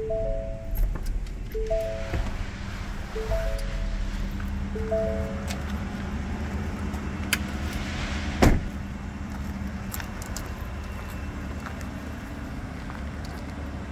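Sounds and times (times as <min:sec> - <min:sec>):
steady low hum: 0:00.0 - 0:10.2
car door shutting thump: 0:08.4 - 0:08.7.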